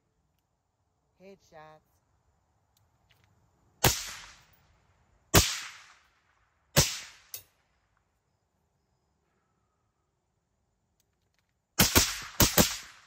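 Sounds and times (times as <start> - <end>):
suppressed rifle shots: 3.8 - 4.5, 5.3 - 6.0, 11.8 - 13.0.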